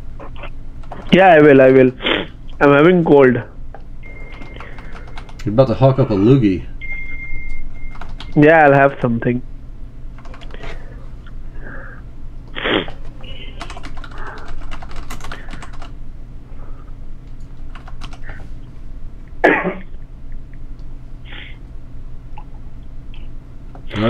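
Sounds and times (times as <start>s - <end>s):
computer keyboard typing: 0.8s - 2.7s, 4.0s - 5.5s, 7.9s - 8.4s, 10.2s - 10.8s, 12.9s - 16.0s, 17.3s - 18.4s
nose or throat noises: 12.5s - 13.4s.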